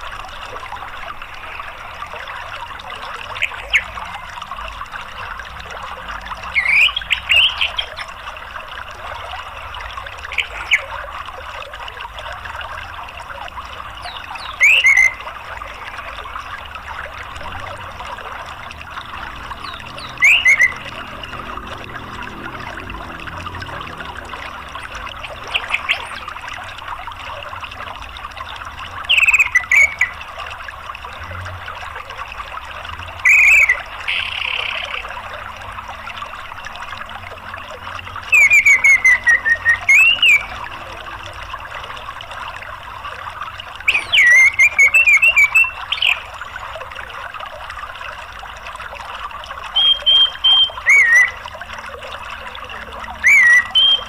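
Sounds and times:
stream rushing: 0.0s - 54.0s
thrush twittering song: 6.4s - 8.2s, 9.0s - 11.1s, 13.9s - 27.8s, 28.4s - 30.5s, 33.1s - 47.2s, 49.6s - 54.0s.

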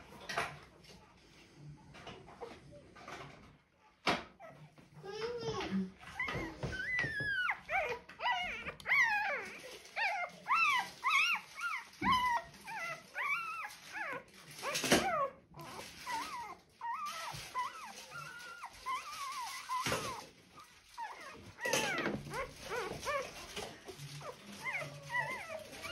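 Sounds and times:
puppy crying: 6.0s - 25.9s.

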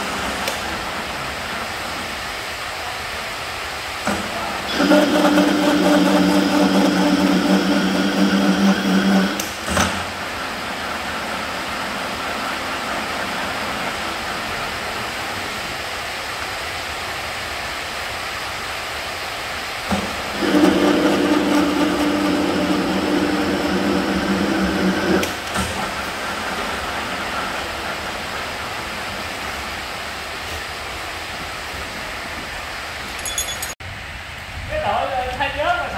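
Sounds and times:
workshop machine humming: 0.0s - 33.8s
steady noisy hiss: 0.0s - 35.9s
machine stopping knock: 4.0s - 14.4s, 19.9s - 29.0s.

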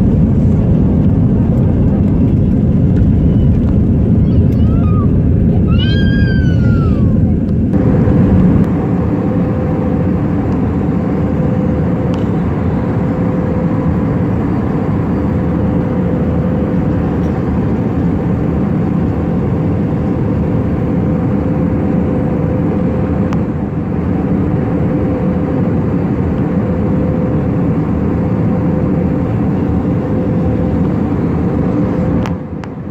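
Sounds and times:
rushing air: 0.0s - 19.4s
jet engine drone: 0.0s - 32.9s
steady hum: 0.0s - 32.9s.

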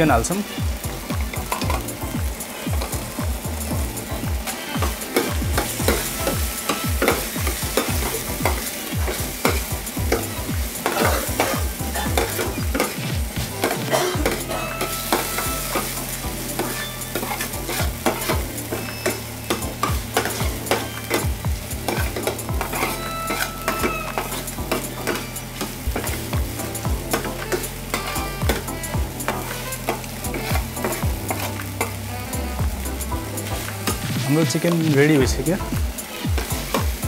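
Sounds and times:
food sizzling in pan: 0.0s - 37.0s
metal ladle scraping frying pan: 4.5s - 32.5s
steady low hum: 23.9s - 34.2s.

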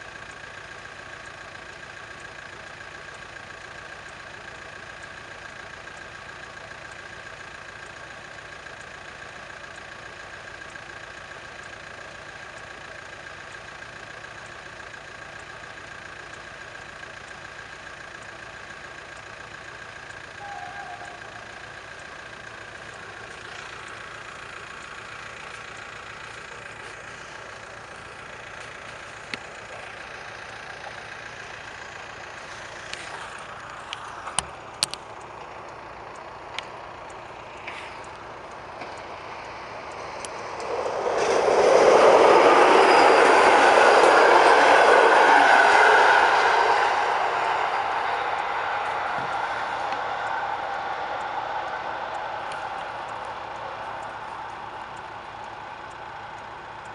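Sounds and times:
diesel locomotive engine drone: 0.0s - 56.9s.

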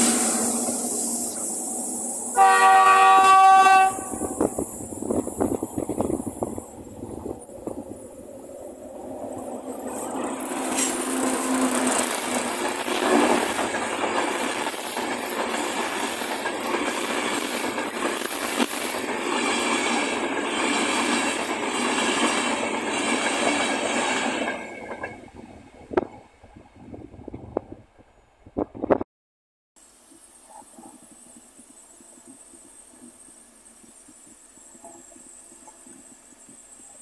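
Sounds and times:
train passing at speed: 0.0s - 28.2s.

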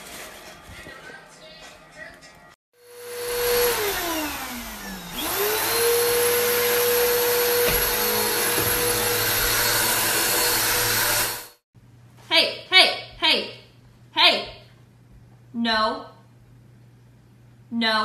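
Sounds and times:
vacuum cleaner whine: 2.8s - 11.6s.

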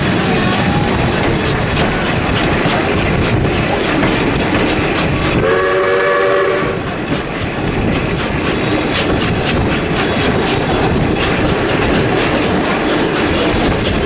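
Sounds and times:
train wheels clattering over rail joints: 0.0s - 14.0s
steam locomotive whistle: 5.4s - 6.9s.

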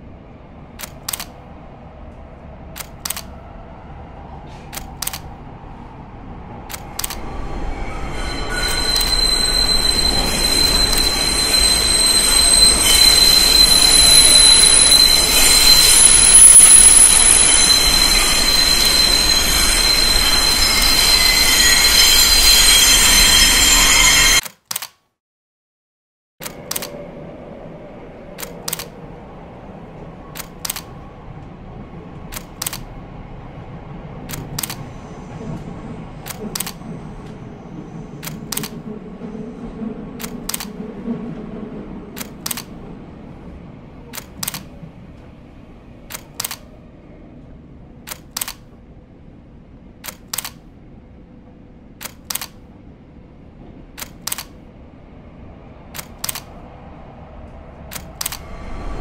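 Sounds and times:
subway station rumble: 0.0s - 24.4s, 26.4s - 59.0s
light-rail train rumble: 0.0s - 24.5s, 26.4s - 59.0s
sharp double click: 24.4s - 25.0s.

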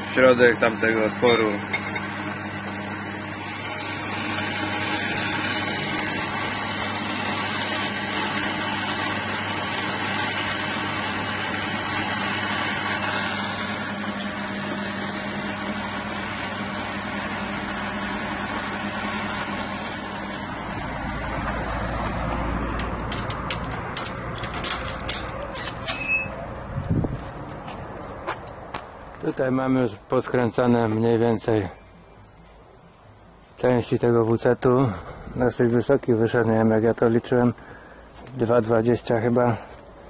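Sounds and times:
metal lathe cutting: 0.0s - 22.5s
metal gate latch clicking: 23.0s - 26.3s.

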